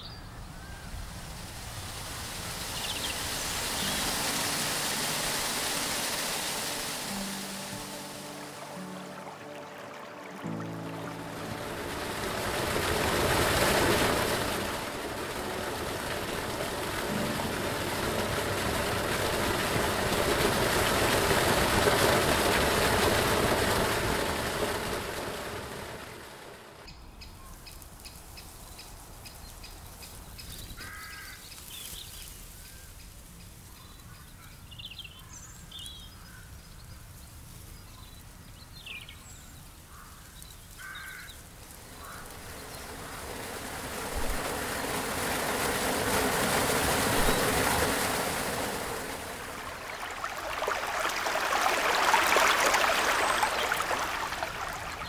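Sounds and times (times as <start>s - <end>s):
birds chirping: 0.0s - 1.3s, 2.6s - 4.6s, 26.8s - 44.4s, 49.2s - 55.0s
rushing water: 0.0s - 26.9s, 27.8s - 55.0s.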